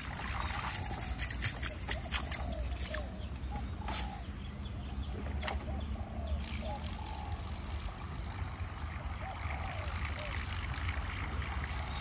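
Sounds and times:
steady low rumble: 0:03.0 - 0:12.0.

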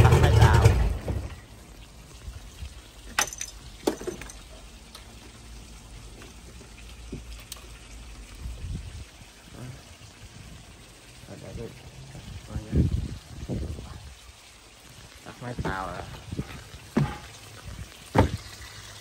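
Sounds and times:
water trickling: 0:00.1 - 0:19.0
sharp knocks: 0:18.1 - 0:18.4.

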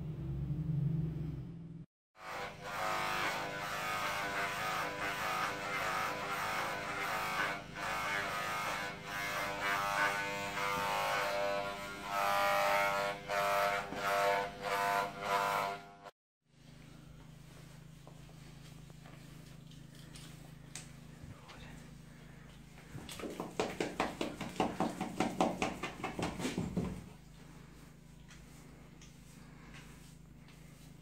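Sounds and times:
electric hair clippers buzzing: 0:02.2 - 0:16.1.

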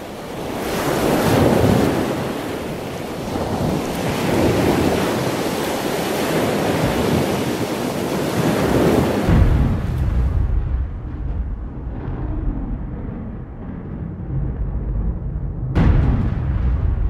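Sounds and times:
ocean waves surf: 0:00.0 - 0:12.9.

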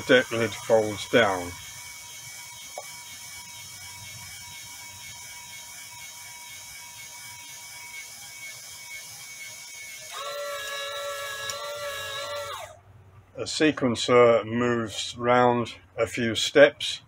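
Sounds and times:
gear motor whirring: 0:00.0 - 0:12.8
motor whine with several tones: 0:00.0 - 0:12.9.

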